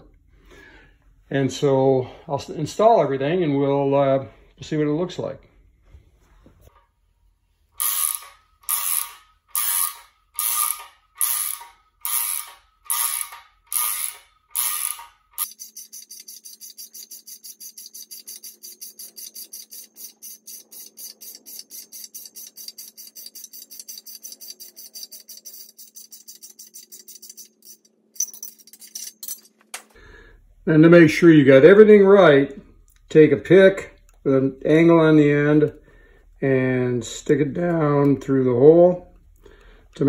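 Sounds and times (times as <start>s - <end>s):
ratchet wrench clicking: 7.8s - 29.2s.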